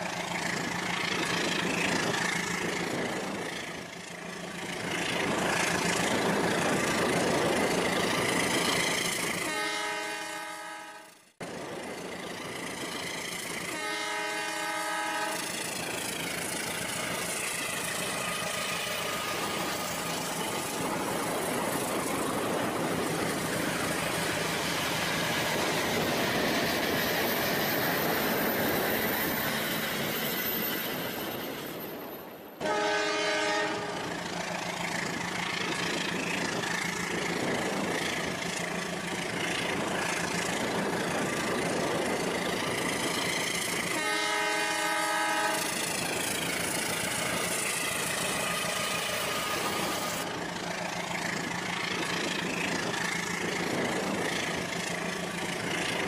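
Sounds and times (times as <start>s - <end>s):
train rumbling: 0.0s - 56.0s
train horn blasts: 9.4s - 11.2s, 13.7s - 15.5s, 32.6s - 34.1s, 43.9s - 45.8s.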